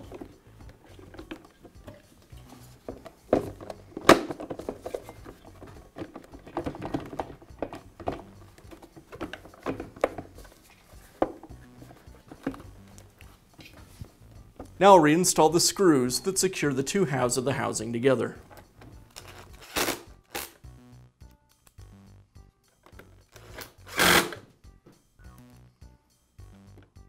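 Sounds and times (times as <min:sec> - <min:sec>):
plastic housing knocking and scraping: 0:02.7 - 0:12.8.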